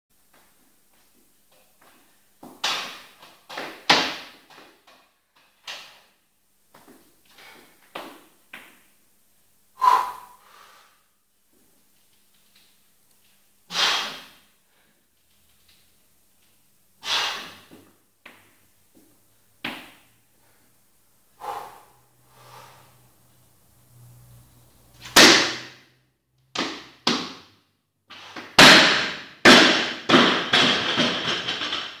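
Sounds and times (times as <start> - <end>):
sharp breaths and hard exhales: 9.8 - 11.1, 13.7 - 15.0, 17.0 - 17.9, 21.3 - 23.2
barbell crashing onto platform: 28.5 - 32.0
plates and bar rattling: 30.1 - 32.0.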